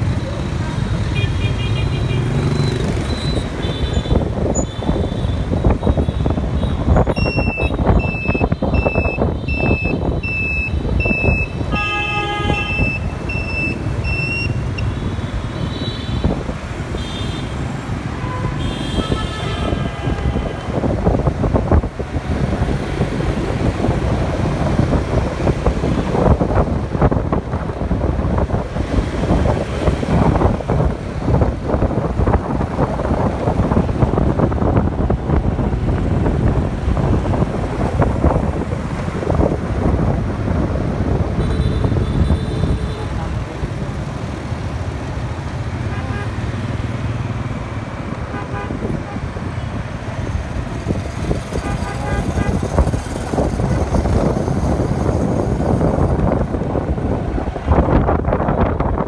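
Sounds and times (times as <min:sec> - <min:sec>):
motorbike engines passing: 0:00.0 - 0:59.0
high electronic beep: 0:07.2 - 0:11.6, 0:12.7 - 0:14.9
horn toots: 0:51.5 - 0:52.8.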